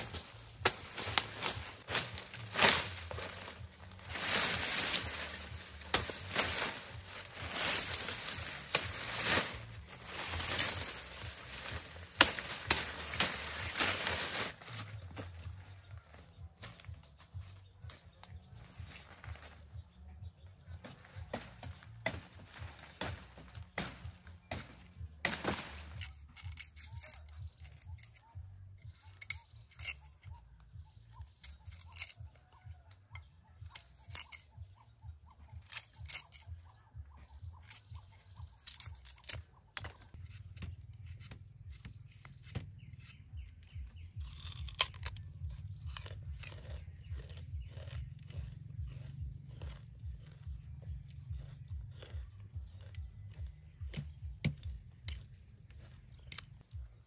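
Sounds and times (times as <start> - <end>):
rind strips tearing: 0.0 - 15.0, 22.9 - 30.4, 31.2 - 32.6, 33.7 - 34.6, 35.5 - 36.7, 37.5 - 43.5, 44.1 - 56.7
machete scraping sugarcane rind: 0.0 - 15.1, 20.8 - 30.4, 31.1 - 32.7, 33.7 - 34.8, 35.5 - 36.7, 37.5 - 50.6, 51.4 - 56.6
person chewing sugarcane: 25.8 - 36.9, 37.5 - 57.0.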